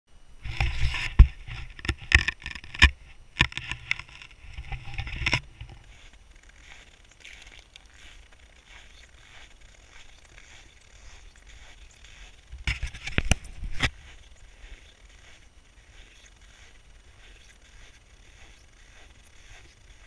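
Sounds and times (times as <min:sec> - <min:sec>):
soft crunches: 0:00.4 - 0:20.0
camera handling knocks and scrapes: 0:00.5 - 0:05.8, 0:12.6 - 0:13.9.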